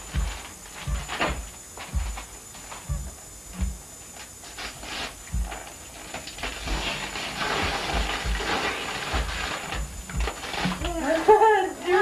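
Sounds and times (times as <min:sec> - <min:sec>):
dull low thumps of box: 0:00.0 - 0:02.3, 0:02.9 - 0:03.9, 0:05.3 - 0:05.6, 0:06.6 - 0:08.6, 0:09.2 - 0:11.0
wrapping paper crinkling and tearing: 0:05.9 - 0:12.0.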